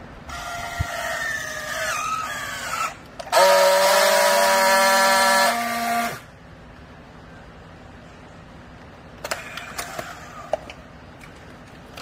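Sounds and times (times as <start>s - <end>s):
steady buzzing welding tone: 0.0s - 6.4s.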